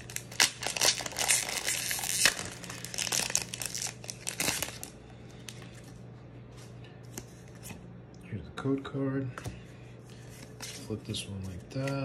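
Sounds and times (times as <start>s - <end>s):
foil wrapper crinkling and tearing: 0.0s - 5.6s
cards sliding and rustling: 10.1s - 12.0s.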